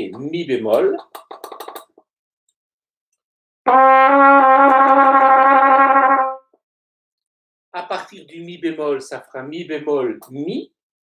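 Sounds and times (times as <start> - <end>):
trumpet trill: 3.7 - 6.6.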